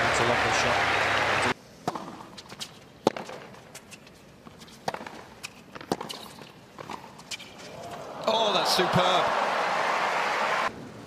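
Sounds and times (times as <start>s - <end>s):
tennis ball hit by racquets: 1.8s - 4.0s, 4.7s - 7.5s.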